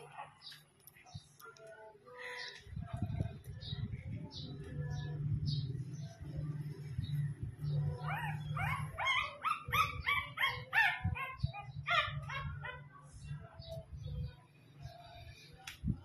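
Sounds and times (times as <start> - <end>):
puppy yelping: 8.0 - 12.8.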